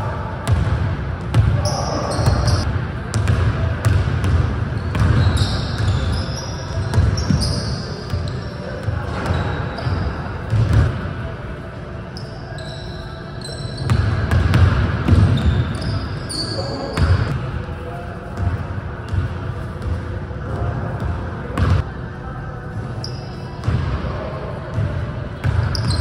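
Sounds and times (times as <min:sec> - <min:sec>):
basketballs bouncing on wooden floor: 0:00.4 - 0:06.2, 0:10.5 - 0:10.9, 0:13.9 - 0:15.6
sneaker squeaks: 0:01.4 - 0:04.0, 0:04.6 - 0:11.0, 0:12.0 - 0:17.4, 0:23.0 - 0:23.8, 0:25.4 - 0:26.0.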